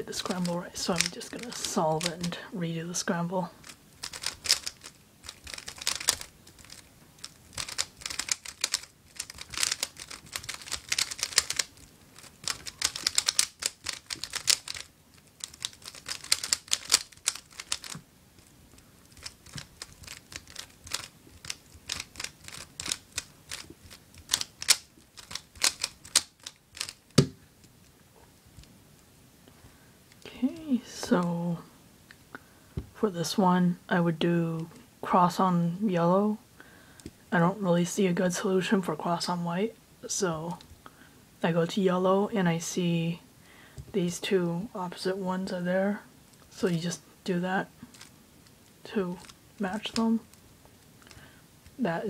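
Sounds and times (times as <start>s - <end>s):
puzzle cube plastic clicks: 0.2s - 2.4s, 3.6s - 18.0s, 19.0s - 27.4s, 47.9s - 51.8s.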